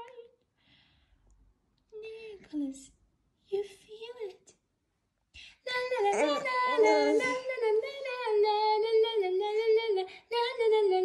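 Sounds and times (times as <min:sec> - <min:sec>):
woman singing wordless melody: 0:05.6 - 0:11.0.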